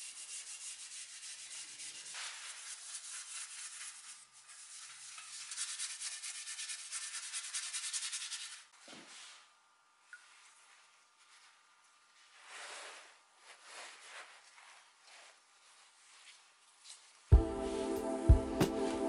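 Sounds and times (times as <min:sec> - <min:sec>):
paintbrush scrubbing over wood: 0:00.0 - 0:09.5, 0:10.2 - 0:18.0
faint handling sounds: 0:08.8 - 0:17.3.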